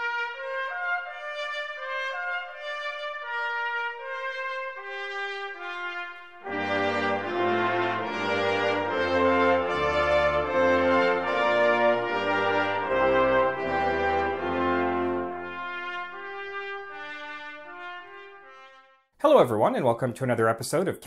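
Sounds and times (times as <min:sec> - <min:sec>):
brass ensemble: 0:00.0 - 0:19.9
brass melody: 0:00.0 - 0:20.2.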